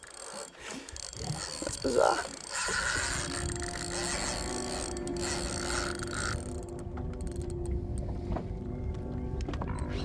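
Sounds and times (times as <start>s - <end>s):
fishing reel buzzing: 0.0s - 7.8s.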